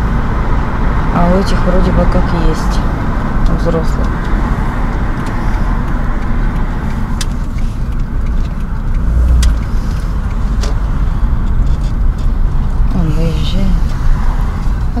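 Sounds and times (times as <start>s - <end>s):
road and engine rumble in car: 0.0s - 15.0s.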